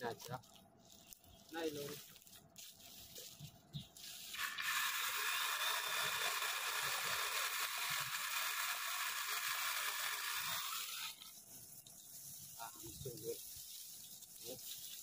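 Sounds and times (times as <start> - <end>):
mini chainsaw cutting branches: 4.3 - 11.4.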